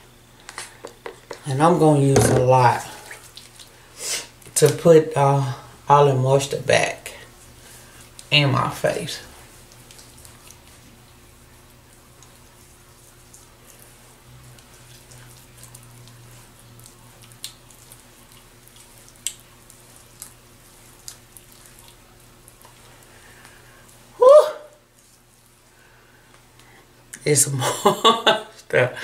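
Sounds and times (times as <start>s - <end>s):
hands rubbing lotion on face: 24.8s - 25.6s.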